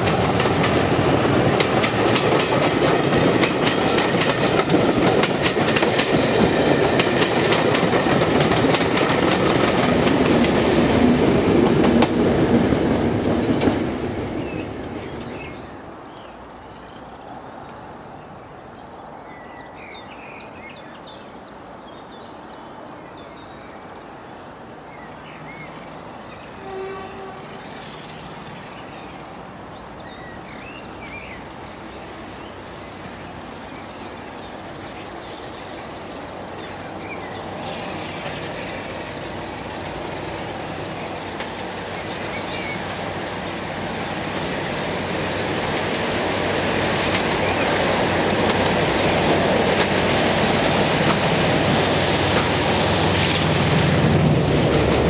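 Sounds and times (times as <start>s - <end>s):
train wheels on rails: 0.0s - 18.4s, 29.8s - 55.0s
diesel locomotive engine: 0.0s - 18.8s, 29.2s - 55.0s
birds chirping: 12.0s - 51.4s.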